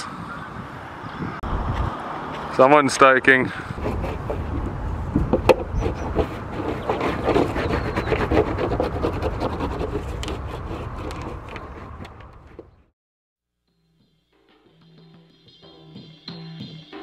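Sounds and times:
wax rubbing on surfboard: 3.8s - 12.7s.

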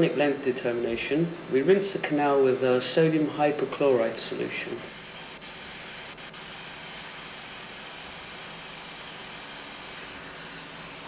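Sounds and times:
dental suction hissing: 3.4s - 11.0s.

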